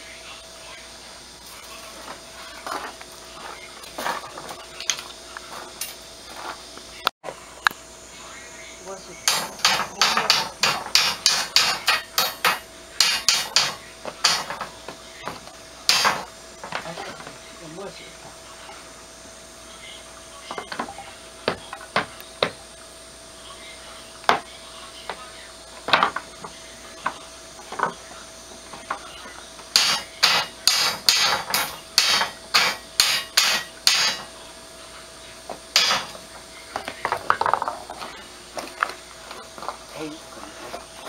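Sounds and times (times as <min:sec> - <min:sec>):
knocks and clinks of hard objects: 0:09.3 - 0:17.3, 0:29.7 - 0:34.3, 0:35.8 - 0:36.2.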